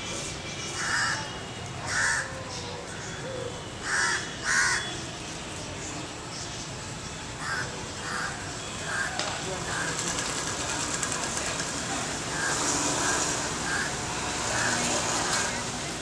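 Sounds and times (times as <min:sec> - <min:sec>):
outdoor background noise: 0:00.0 - 0:16.0
crow cawing: 0:01.9 - 0:02.3, 0:03.8 - 0:04.9, 0:07.4 - 0:10.0, 0:12.4 - 0:14.9.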